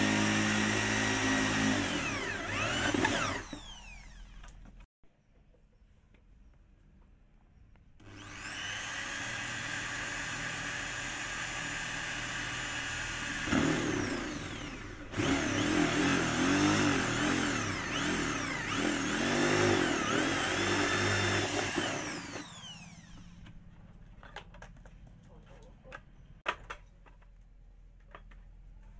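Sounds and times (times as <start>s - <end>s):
electric drill cutting plastic: 0.0s - 4.6s, 8.0s - 23.5s.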